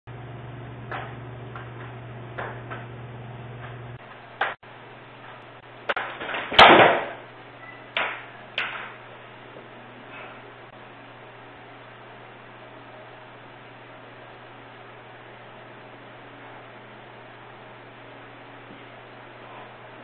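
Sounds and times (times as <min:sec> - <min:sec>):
loud crash of person falling: 0:06.0 - 0:07.2.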